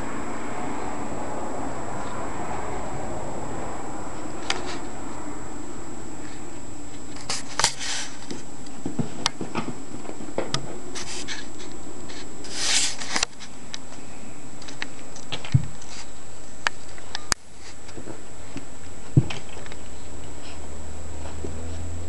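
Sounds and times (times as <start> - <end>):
steady background hiss: 0.0 - 22.0
short hissing rushes: 7.2 - 8.3, 10.9 - 13.2.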